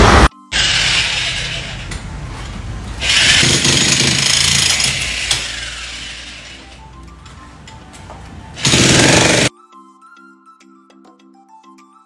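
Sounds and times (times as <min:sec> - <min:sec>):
background music: 0:00.3 - 0:12.0
power tool drilling into concrete: 0:00.5 - 0:02.0, 0:03.0 - 0:06.8, 0:08.6 - 0:09.5.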